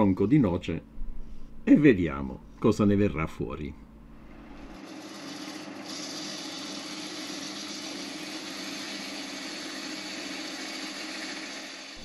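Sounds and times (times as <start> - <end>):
lathe motor hum: 4.6 - 12.0
tool cutting wood hiss: 4.8 - 12.0.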